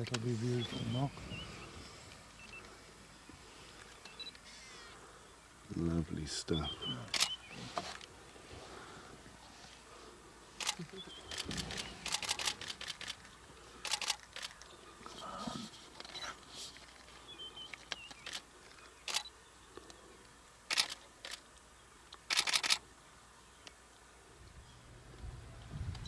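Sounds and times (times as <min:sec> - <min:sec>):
camera shutters clicking: 0:07.1 - 0:07.4, 0:10.6 - 0:14.6, 0:17.8 - 0:19.3, 0:20.7 - 0:21.4, 0:22.2 - 0:22.8.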